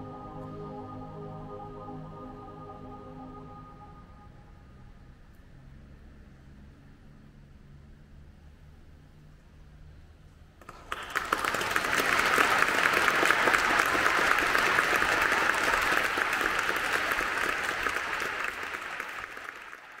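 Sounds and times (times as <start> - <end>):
audience applauding: 10.6 - 20.0.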